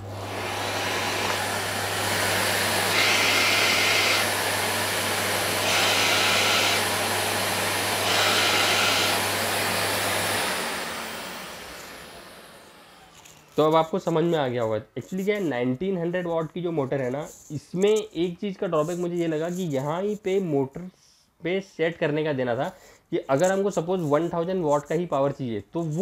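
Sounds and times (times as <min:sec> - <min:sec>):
vacuum cleaner running: 0:00.0 - 0:13.8
vacuum motor winding down: 0:00.0 - 0:13.8.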